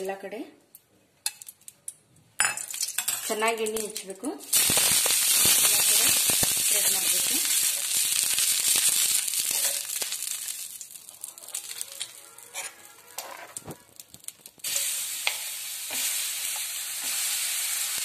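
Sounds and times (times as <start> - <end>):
batter sizzling on a hot pan: 4.5 - 18.0
oil sizzling on a griddle: 4.5 - 18.0.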